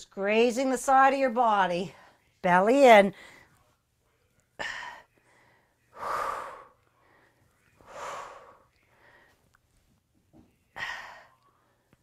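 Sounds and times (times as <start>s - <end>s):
woman breathing hard: 4.6s - 9.5s, 10.7s - 11.9s.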